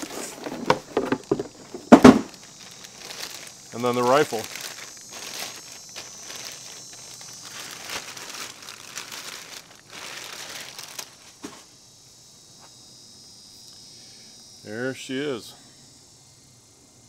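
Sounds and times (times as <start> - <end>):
plastic bag crinkling: 0.0 - 11.5.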